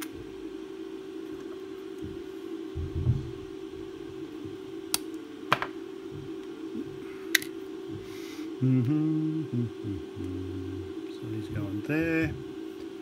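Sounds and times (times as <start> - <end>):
faint steady hum: 0.0 - 13.0
person humming low: 6.2 - 11.2.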